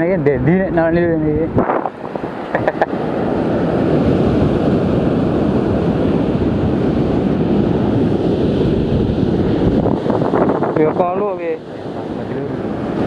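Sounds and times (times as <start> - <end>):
wind buffeting microphone: 0.0 - 13.0
surf breaking on beach: 1.5 - 13.0.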